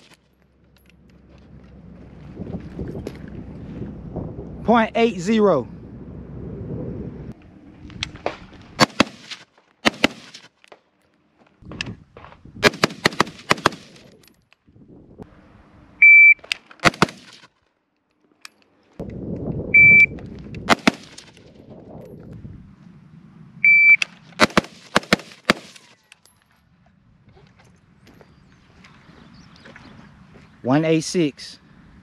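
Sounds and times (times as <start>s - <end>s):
rifle shots: 8.8s - 10.5s, 12.6s - 14.0s, 16.8s - 17.5s, 20.7s - 21.3s, 24.4s - 25.9s
shot timer beep: 16.0s - 16.4s, 19.8s - 20.1s, 23.6s - 24.0s.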